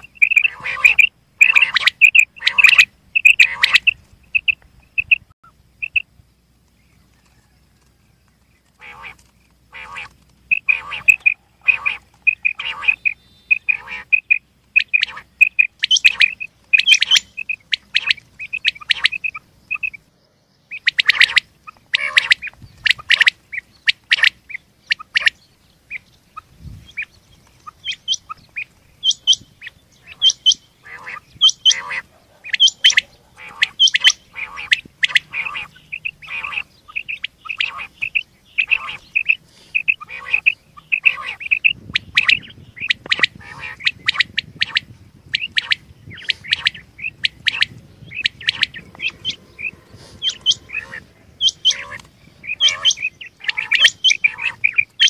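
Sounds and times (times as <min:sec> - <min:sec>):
quail calling: 0:00.0 - 0:06.1, 0:08.6 - 0:20.1, 0:20.7 - 0:55.0.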